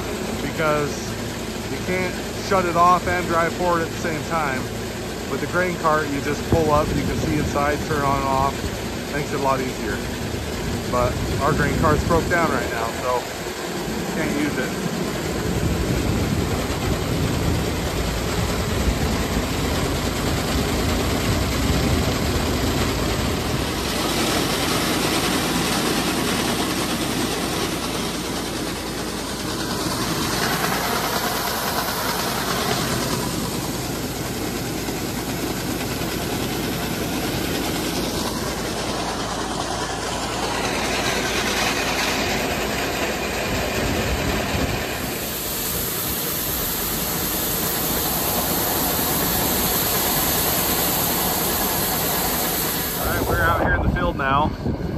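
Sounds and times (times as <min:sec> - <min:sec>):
grain auger running: 0:00.0 - 0:54.7
tractor engine: 0:00.0 - 0:54.9
grain pouring: 0:23.7 - 0:38.8, 0:44.8 - 0:53.6.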